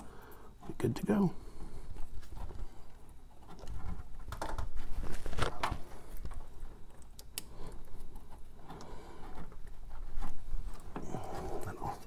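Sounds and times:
wire connectors clicking and rustling: 0:01.9 - 0:12.0.

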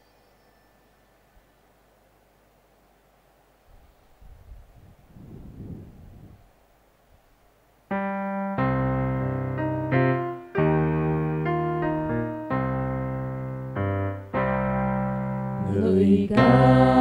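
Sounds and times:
electronic keyboard chords: 0:07.9 - 0:17.0.

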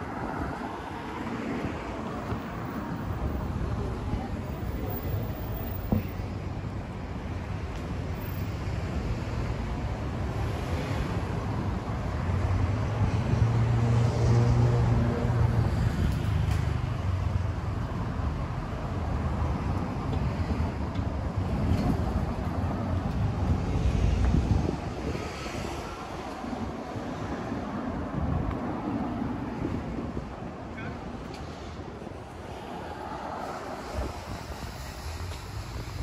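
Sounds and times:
traffic rumble: 0:00.0 - 0:36.0.

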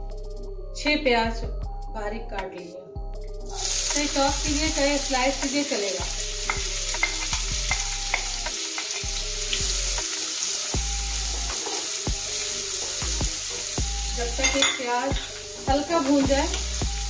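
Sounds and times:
onions sizzling in a frying pan: 0:03.5 - 0:17.0
spatula tapping and scraping: 0:06.5 - 0:09.1.

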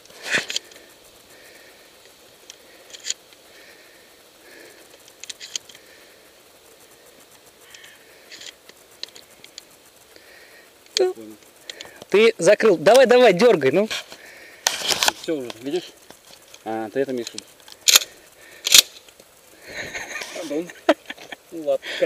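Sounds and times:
shotgun clicks: 0:17.2 - 0:19.2
shotgun clacking: 0:17.8 - 0:19.0.

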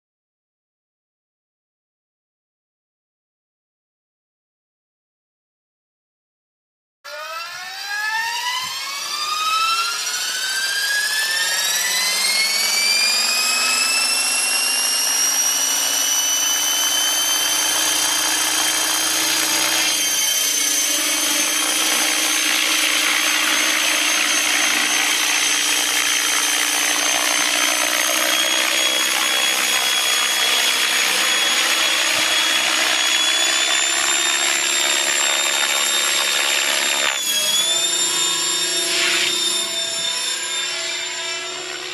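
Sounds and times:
model helicopter whine: 0:07.1 - 0:41.9
rotor buzz: 0:08.4 - 0:41.9.

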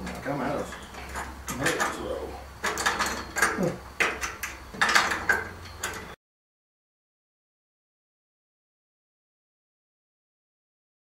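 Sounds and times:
steel parts clanking and rattling: 0:00.0 - 0:06.2.

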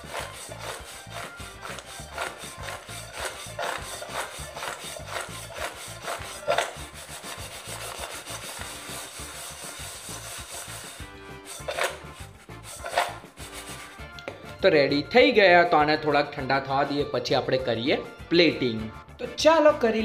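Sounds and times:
peanuts rattling in metal bowl: 0:00.0 - 0:13.9.

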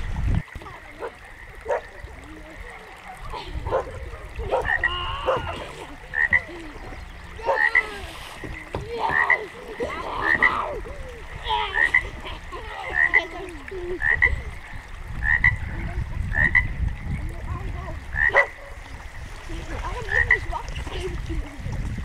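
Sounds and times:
frogs croaking: 0:00.0 - 0:20.7.

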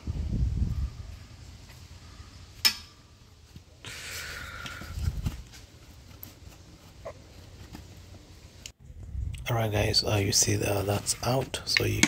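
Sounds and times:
rustling and scraping: 0:04.5 - 0:08.7.

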